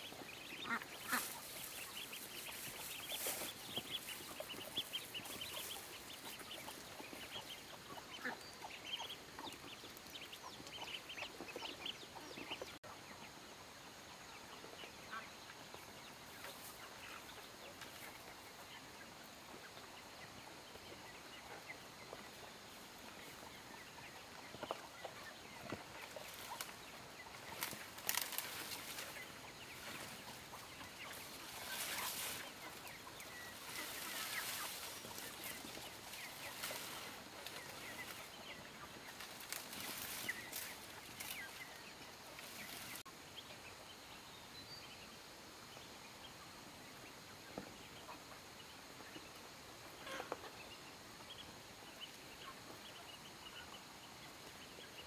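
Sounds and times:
rustling noise: 0:00.0 - 0:07.5, 0:25.6 - 0:43.1
chickens clucking: 0:00.0 - 0:43.1, 0:46.4 - 0:55.0.

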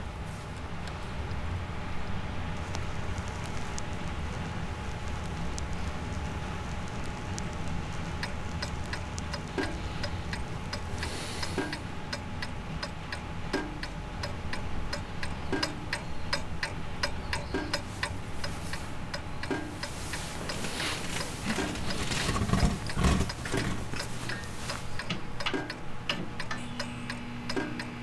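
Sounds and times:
steady low rumble: 0:00.0 - 0:26.6
alarm clock ticking: 0:08.2 - 0:25.8.

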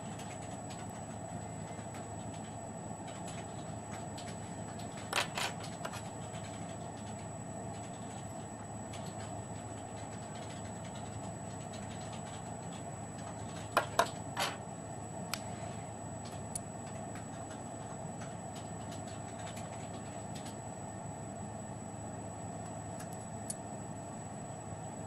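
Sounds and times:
steady background hum: 0:00.0 - 0:25.0.

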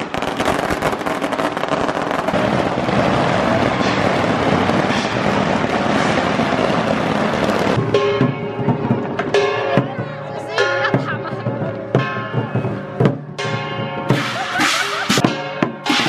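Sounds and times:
firecrackers crackling: 0:00.0 - 0:09.6, 0:14.1 - 0:16.0.

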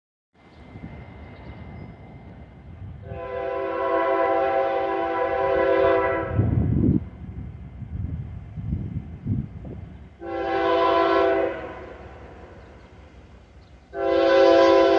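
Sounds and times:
train air horn chord: 0:03.0 - 0:06.6, 0:10.2 - 0:12.7, 0:13.9 - 0:14.9.

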